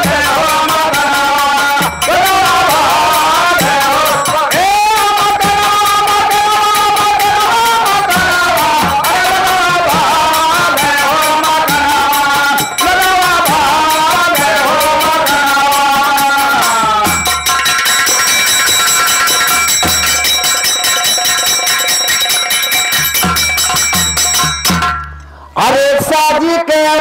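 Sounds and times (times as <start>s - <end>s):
man singing: 0.0s - 17.5s, 25.6s - 27.0s
kettle drums beaten with sticks: 0.0s - 25.2s
small hand cymbals: 9.7s - 25.3s.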